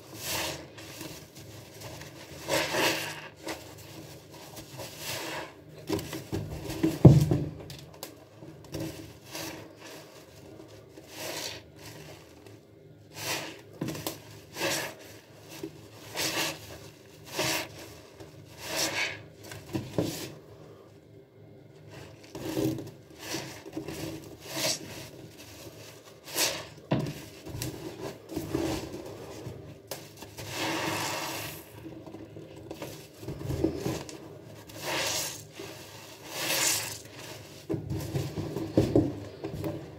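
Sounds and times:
wet sponge squelching: 0.1s - 5.6s, 22.0s - 29.6s, 34.6s - 37.7s.

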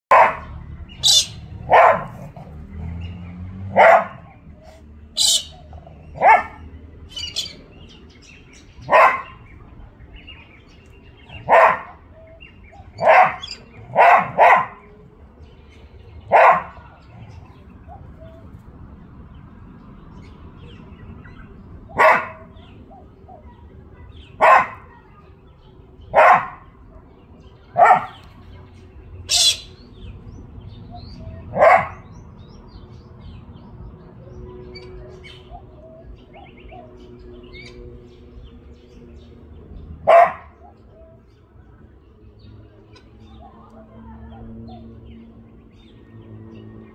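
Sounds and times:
dog barking: 0.1s - 2.6s, 3.7s - 4.4s, 6.2s - 6.6s, 8.8s - 9.4s, 11.4s - 12.2s, 12.9s - 14.9s, 16.3s - 17.0s, 21.9s - 22.6s, 24.4s - 24.9s, 26.1s - 27.1s, 27.7s - 28.2s, 31.5s - 32.1s, 40.0s - 41.2s
bird screech: 1.0s - 1.4s, 5.2s - 5.6s, 29.3s - 29.7s.

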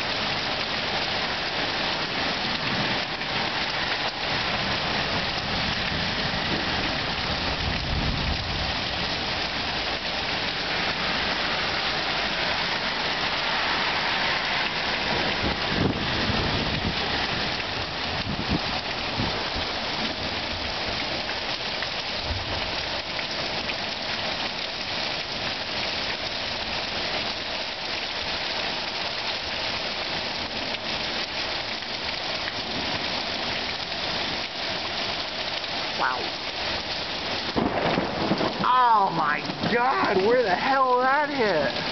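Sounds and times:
steady rain: 0.0s - 41.9s
low thunder rumbles: 4.4s - 11.2s, 36.0s - 40.6s.

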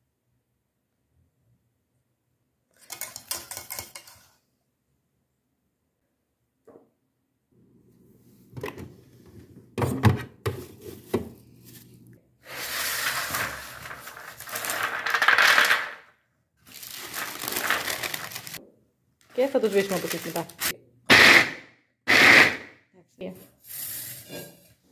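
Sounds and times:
kitchenware knocking and clinking: 2.8s - 4.3s
baking paper crinkling: 10.8s - 16.0s, 16.6s - 18.6s, 19.3s - 20.7s.

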